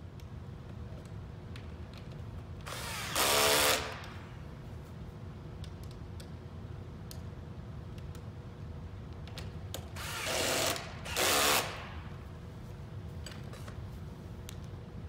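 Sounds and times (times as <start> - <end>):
cordless drill driving bolts: 2.7 - 4.2, 10.0 - 11.9.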